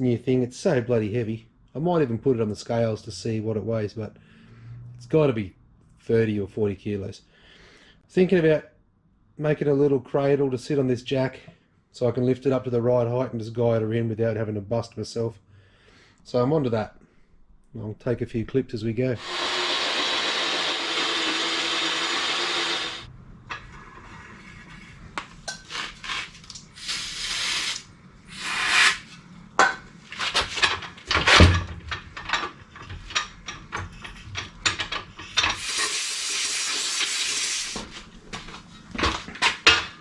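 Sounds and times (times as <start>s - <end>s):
cordless drill running: 19.2s - 23.1s
short hissing bursts: 26.7s - 29.0s, 35.6s - 37.8s.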